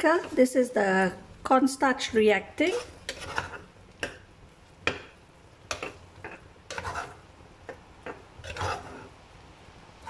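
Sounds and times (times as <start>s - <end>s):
metal spoon scraping saucepan: 2.6s - 3.7s, 5.7s - 7.2s, 8.4s - 9.1s.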